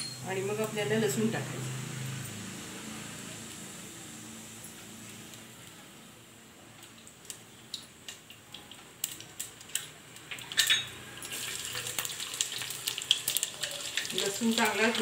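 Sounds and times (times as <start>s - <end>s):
seeds spluttering in hot oil: 2.5s - 15.0s
garlic sizzling in oil: 7.2s - 15.0s.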